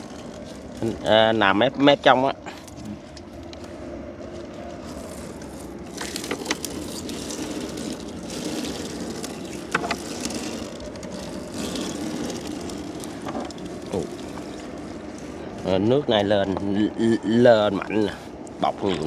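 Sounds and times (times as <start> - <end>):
boat engine running: 0.0 - 19.0
net rustling: 4.2 - 15.2.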